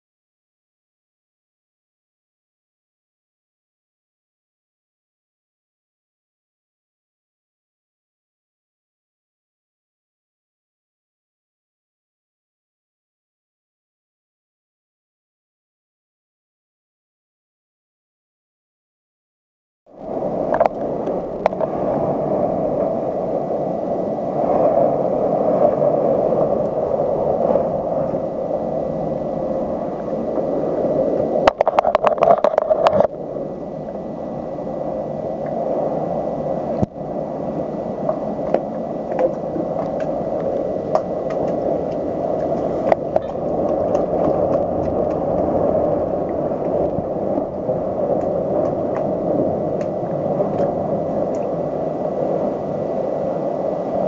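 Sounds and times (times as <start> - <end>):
strong wind blowing: 19.9 - 54.0.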